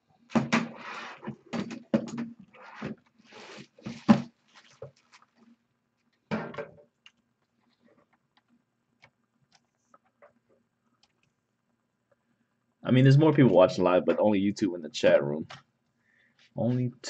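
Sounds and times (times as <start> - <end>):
low steady hum: 1.6 - 17.0
rustling: 2.4 - 6.2.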